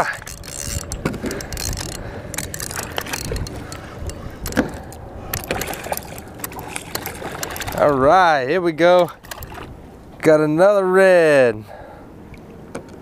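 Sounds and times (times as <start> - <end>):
fishing gear clicks and rattles: 0.0 - 8.0, 9.0 - 9.7
water lapping around a kayak: 0.0 - 8.2, 8.8 - 9.9
wind buffeting microphone: 0.0 - 10.0.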